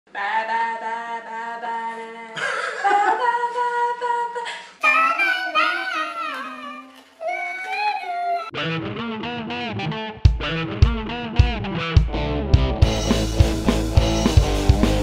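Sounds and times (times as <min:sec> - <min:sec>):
man and woman singing and humming: 0:00.1 - 0:08.5
man and woman laughing: 0:02.4 - 0:03.4.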